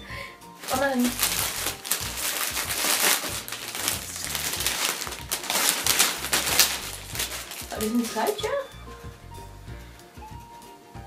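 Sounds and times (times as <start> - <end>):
wrapping paper crinkling: 0.6 - 8.6.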